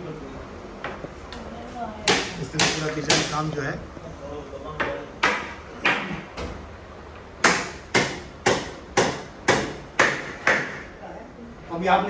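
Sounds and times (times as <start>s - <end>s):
hammer striking wood: 2.0s - 3.4s, 4.8s - 6.1s, 7.4s - 10.9s.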